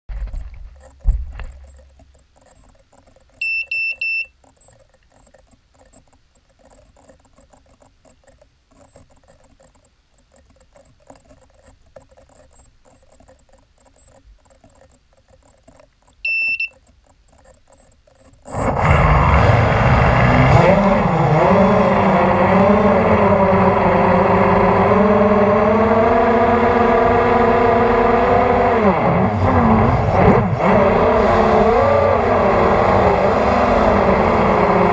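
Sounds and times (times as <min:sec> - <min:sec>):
drone electronics beeping: 0:03.4 - 0:05.3, 0:16.2 - 0:16.8
drone propellers buzzing whine: 0:18.5 - 0:34.9.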